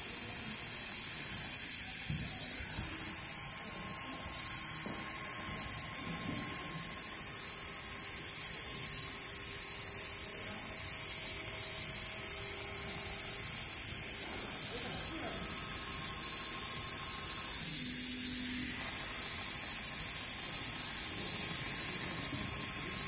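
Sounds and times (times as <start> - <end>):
sewing machine hissing: 0.0 - 23.0.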